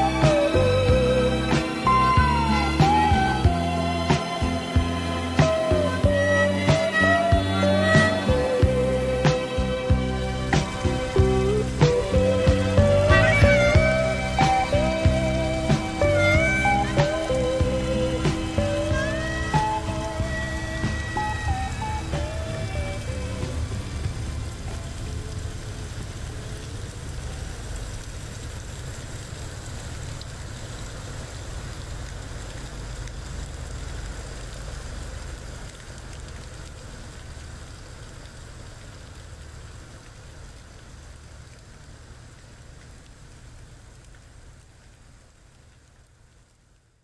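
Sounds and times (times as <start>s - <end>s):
song: 0.0s - 24.3s
low rumble of wind or traffic: 0.0s - 47.0s
rain hissing: 0.0s - 47.0s.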